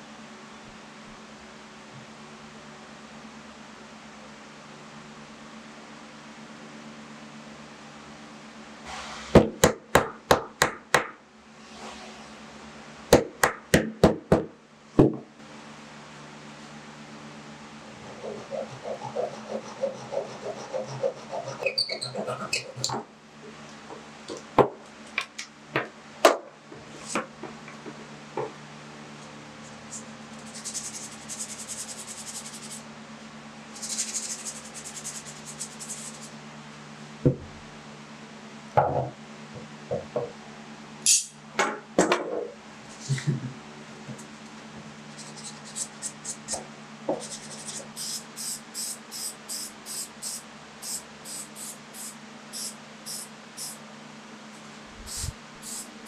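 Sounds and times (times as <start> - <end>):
wood knocking on workbench: 13.2 - 15.3, 38.8 - 39.2
scraping hiss: 55.0 - 55.9
spray can ball rattling: 55.1 - 55.9.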